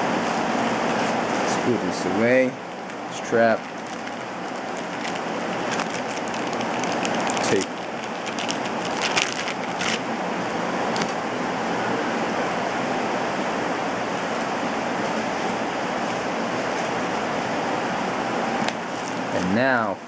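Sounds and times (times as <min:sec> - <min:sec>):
plastic bag crinkling: 0:02.8 - 0:10.1, 0:18.9 - 0:19.3.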